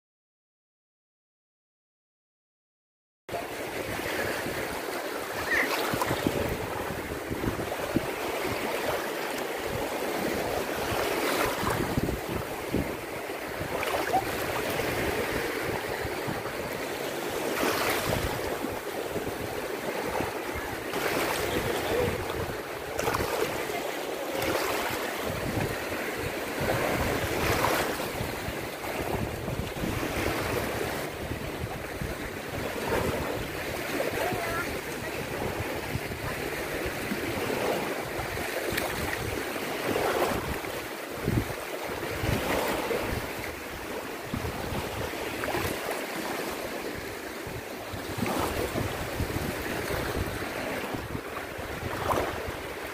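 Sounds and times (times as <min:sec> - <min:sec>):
wind rumbling on microphone: 0:03.3 - 0:45.9, 0:46.7 - 0:52.9
small waves washing ashore: 0:03.3 - 0:52.9.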